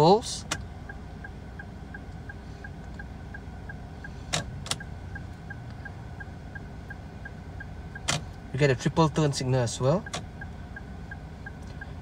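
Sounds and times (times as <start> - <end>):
turn-signal indicator ticking: 0.4 - 8.2, 9.9 - 12.0.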